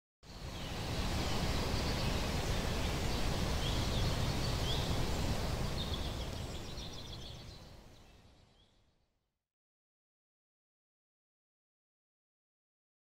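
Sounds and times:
small birds chirping: 0.2s - 8.9s.

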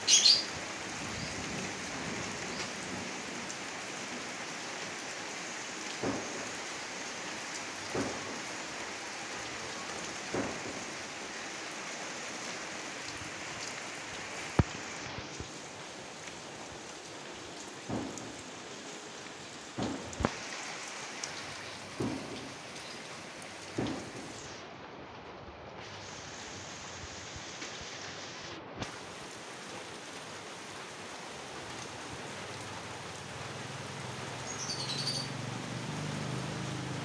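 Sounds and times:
rain falling on gravel: 0.0s - 37.0s.

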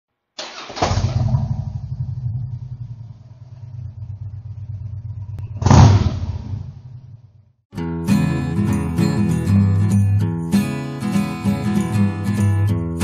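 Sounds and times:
motorcycle engine starting and idling: 0.4s - 7.5s
motorcycle engine revving: 0.4s - 7.6s.

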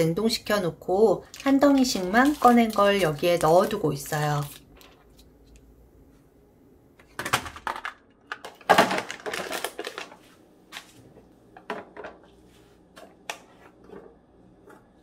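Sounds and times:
plastic tubs clattering: 7.0s - 10.2s.

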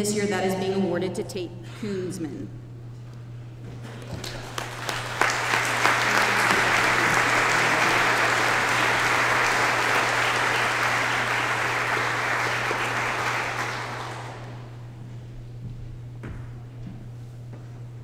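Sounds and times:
audience applauding: 4.0s - 14.8s.

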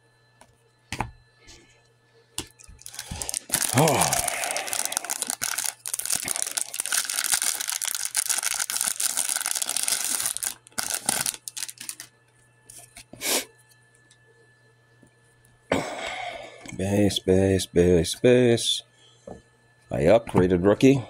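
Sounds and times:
wrapper tearing and crinkling: 2.8s - 12.1s.

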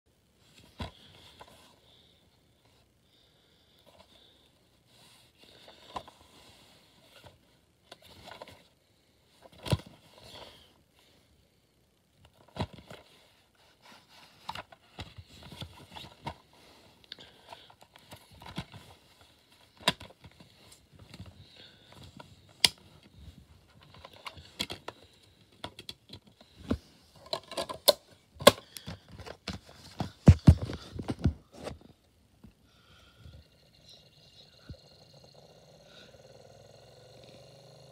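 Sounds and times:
plastic case clicking and rattling: 23.8s - 26.4s, 27.2s - 31.4s.

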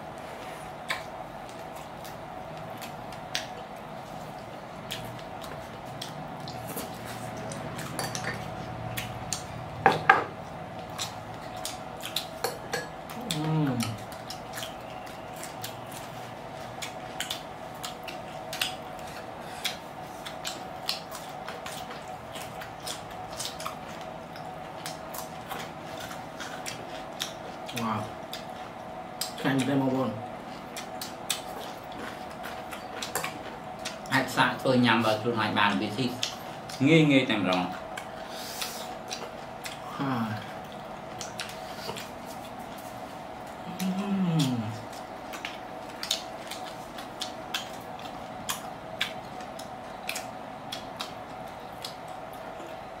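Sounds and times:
faint steady hum: 0.0s - 53.0s
chewing and crunching food: 0.1s - 53.0s
person humming: 43.6s - 44.8s.

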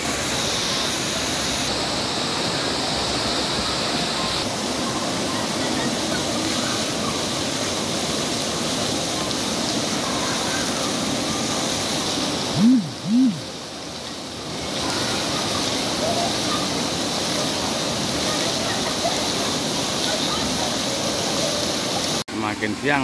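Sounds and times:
water pouring and splashing: 0.0s - 23.0s
rising and falling tones: 12.6s - 13.4s.

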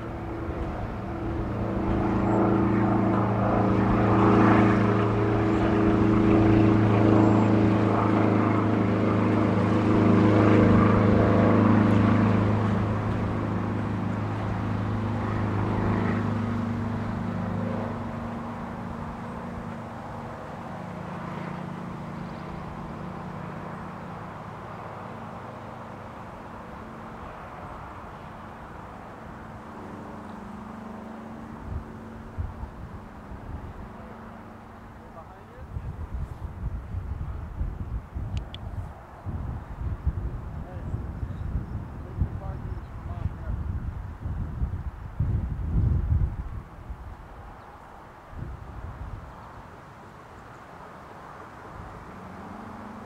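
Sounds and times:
propeller airplane engine drone: 0.0s - 53.0s.

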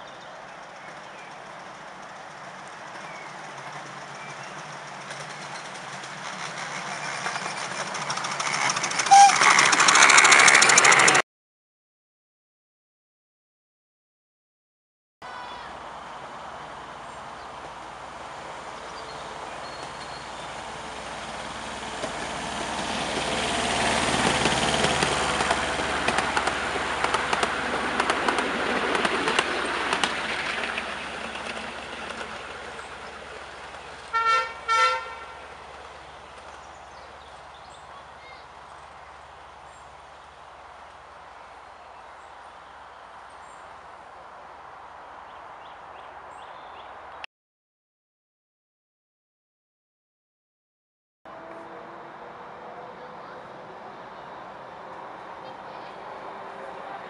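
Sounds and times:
miniature train wheels clicking: 0.7s - 11.2s, 24.1s - 33.0s
train horn toots: 9.0s - 9.7s, 34.1s - 35.5s.

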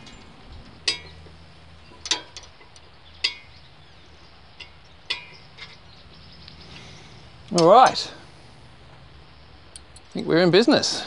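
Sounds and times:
sharp metallic clinks: 0.0s - 3.7s, 4.5s - 8.2s.

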